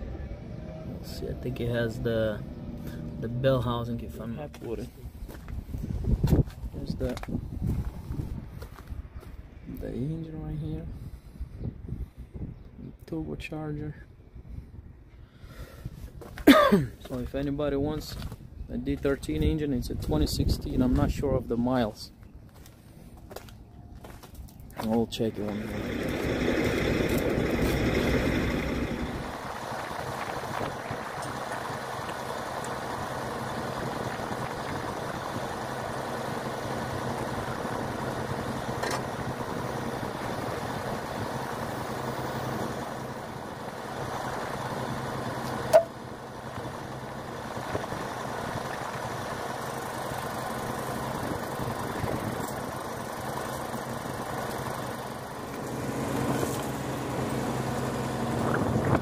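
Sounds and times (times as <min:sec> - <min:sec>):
heavy truck engine idling: 0:24.9 - 0:59.0
sharp metallic clank: 0:45.7 - 0:46.0.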